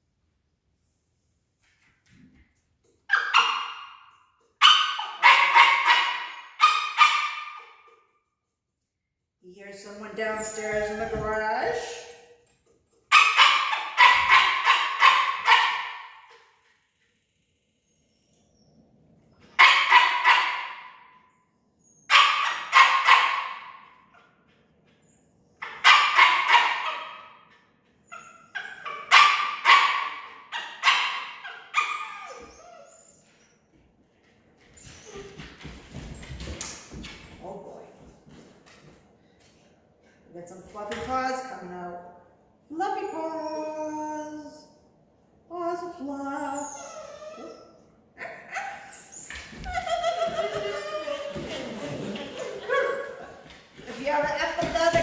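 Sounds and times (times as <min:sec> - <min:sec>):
dog barking: 0:03.1 - 0:04.0, 0:04.6 - 0:07.8, 0:13.1 - 0:16.2, 0:19.6 - 0:21.0, 0:22.1 - 0:23.8, 0:25.6 - 0:27.4, 0:28.6 - 0:32.4.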